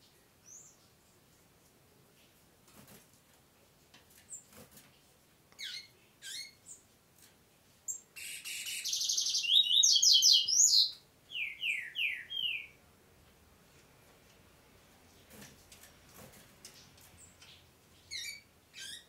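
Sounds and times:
bird chirps and song: 0.4s - 0.9s, 5.6s - 6.9s, 7.9s - 12.8s, 16.6s - 19.0s.

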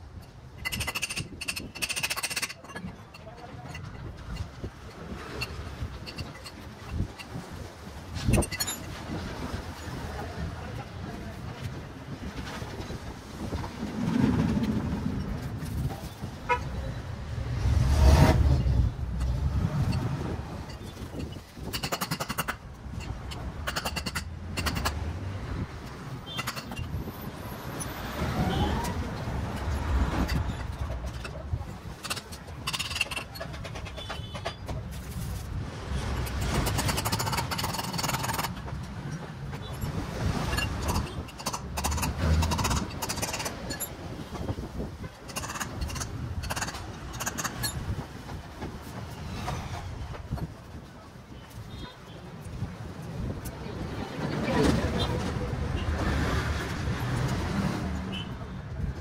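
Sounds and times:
vehicle engine rumbling: 0.0s - 59.0s
vehicle passing rumble: 13.6s - 20.7s.

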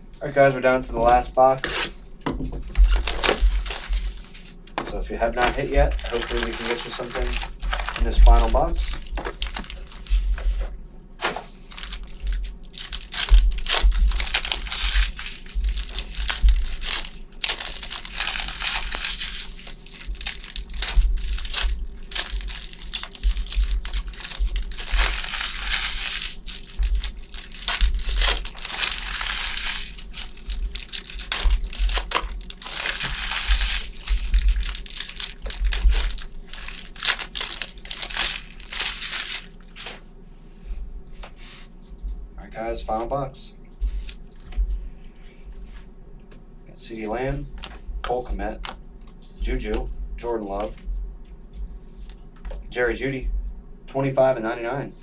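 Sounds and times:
plastic wrappers crinkling and tearing: 2.6s - 10.6s, 11.5s - 40.0s, 47.6s - 49.9s.

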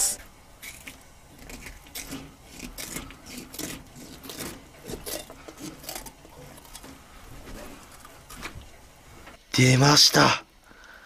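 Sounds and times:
scissors snipping fish skin: 0.6s - 6.9s.

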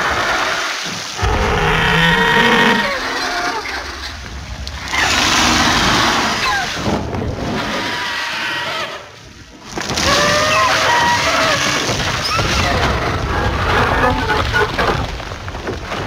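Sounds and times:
rushing rumbling roar: 1.2s - 8.5s
gliding shrieks: 1.2s - 8.6s.

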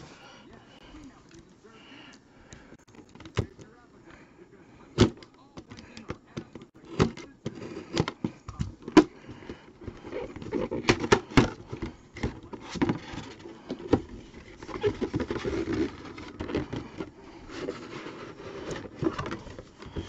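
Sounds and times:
packaging rustling: 5.0s - 20.0s.

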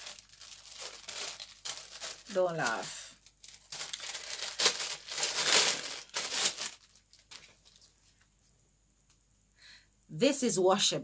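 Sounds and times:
packaging crinkling and rustling: 0.0s - 8.2s.

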